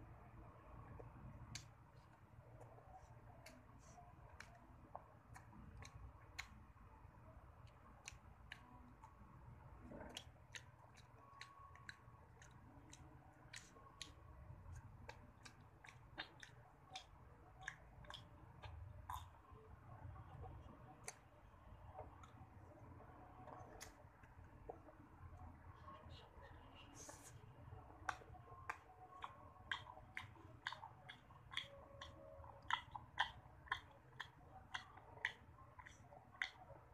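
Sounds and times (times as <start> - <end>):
chewing and licking mouth sounds: 0.9 - 25.9, 27.0 - 36.9.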